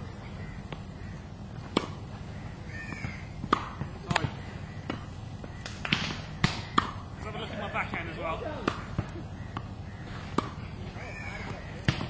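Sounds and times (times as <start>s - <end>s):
tennis ball bounces: 0.6s - 0.9s, 1.5s - 12.0s
tennis racket strikes: 3.4s - 4.3s, 10.3s - 10.6s.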